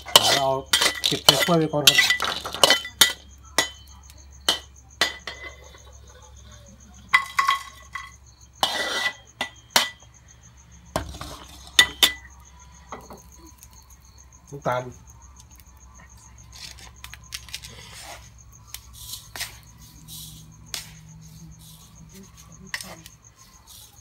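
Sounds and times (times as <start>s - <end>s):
metal spatula scraping a wok: 0.0s - 3.9s, 7.1s - 10.0s, 10.9s - 12.3s, 16.5s - 24.0s
cricket chirping: 0.0s - 24.0s.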